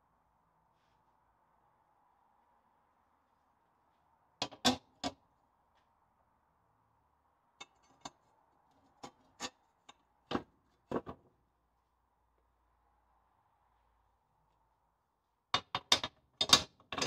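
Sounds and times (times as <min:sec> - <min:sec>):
steel leaves knocking and clinking: 0:07.6 - 0:08.3, 0:15.6 - 0:17.0.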